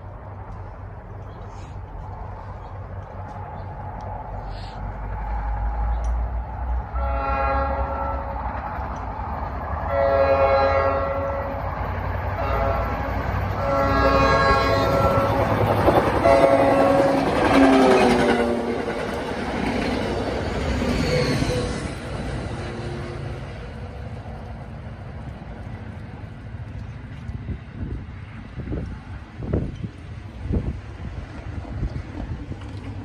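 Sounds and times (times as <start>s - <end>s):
train horn blasts: 6.9s - 8.6s, 9.8s - 11.7s, 12.4s - 18.9s
train wheels clacking on rails: 14.2s - 23.7s.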